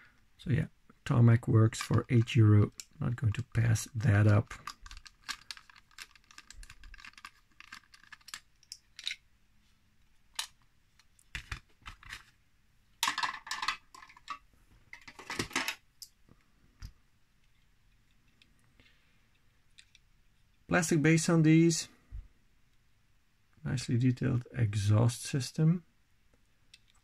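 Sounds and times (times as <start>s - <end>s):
plastic parts clattering: 1.6s - 9.2s, 10.3s - 12.4s, 13.0s - 15.9s.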